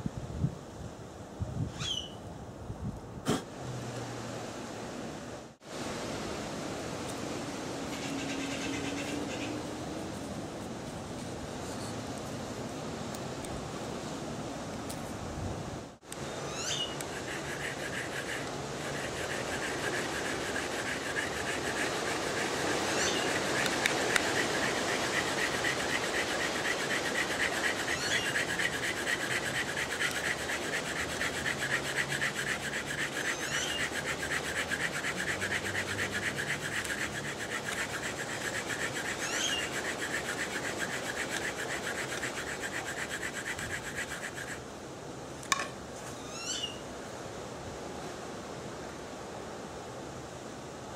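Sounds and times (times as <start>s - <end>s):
bamboo rasping on bamboo: 16.8s - 44.6s.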